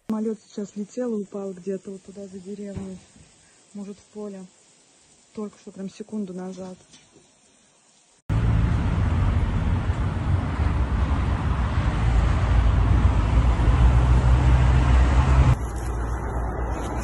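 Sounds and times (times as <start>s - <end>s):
wind buffeting microphone: 8.6s - 15.6s.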